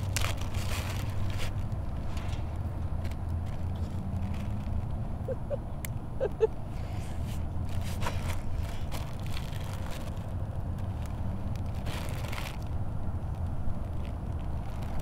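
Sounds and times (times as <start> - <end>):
plastic bag crinkling: 0.0 - 1.8, 3.4 - 4.9, 7.6 - 12.8, 13.8 - 15.0
steady low rumble: 0.0 - 15.0.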